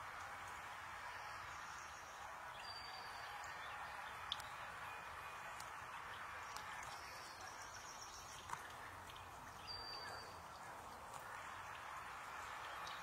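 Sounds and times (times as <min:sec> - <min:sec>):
fountain splashing: 0:00.0 - 0:13.0
faint ticks: 0:04.2 - 0:04.6.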